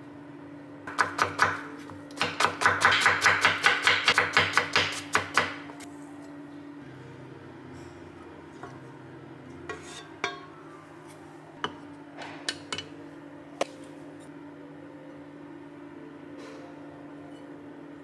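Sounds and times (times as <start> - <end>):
steady low hum: 4.9 - 18.0.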